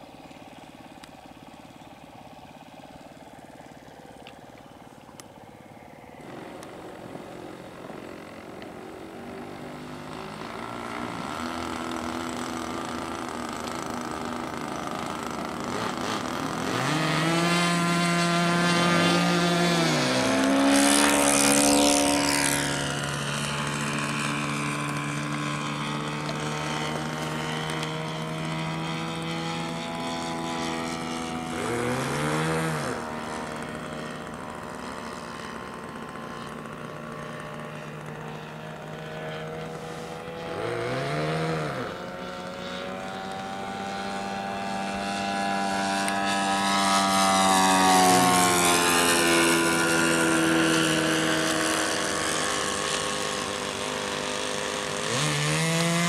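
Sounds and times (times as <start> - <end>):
model airplane engine buzzing: 0.0 - 56.0.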